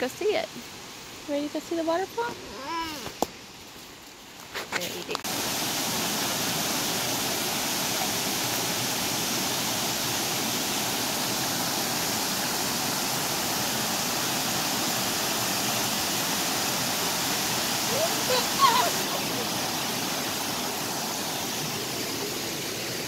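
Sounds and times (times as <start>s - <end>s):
waterfall rushing over rocks: 4.9s - 23.0s.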